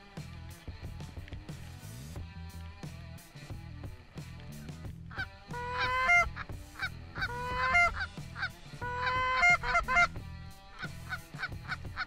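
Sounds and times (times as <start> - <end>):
background music: 0.0 - 12.0
geese honking: 4.2 - 12.0.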